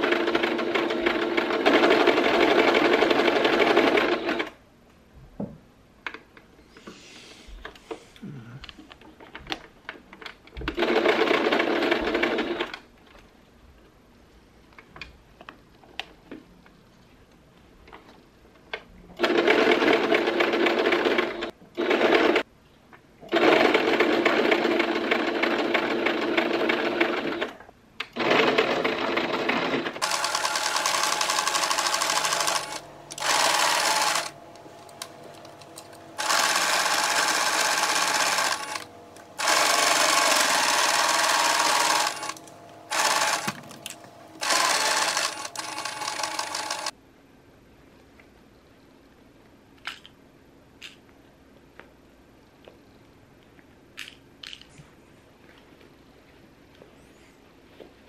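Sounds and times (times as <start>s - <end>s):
electric sewing machine stitching: 0.0s - 4.5s, 19.2s - 22.4s, 23.3s - 27.5s, 28.2s - 46.9s.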